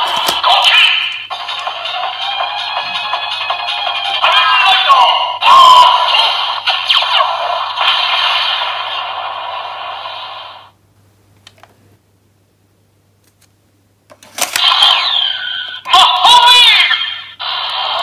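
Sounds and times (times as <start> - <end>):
toy electronic sound effect: 0.2 - 9.1, 14.5 - 18.0.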